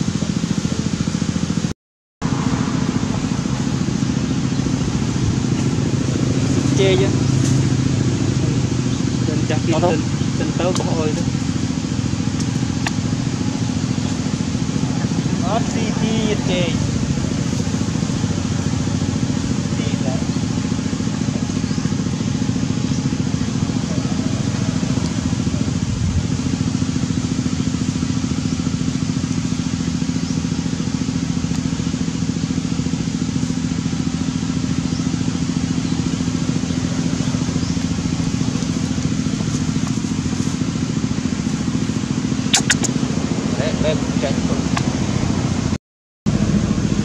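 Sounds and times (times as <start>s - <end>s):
engine hum: 0.0s - 47.0s
sharp click: 12.4s - 13.0s, 42.5s - 43.0s.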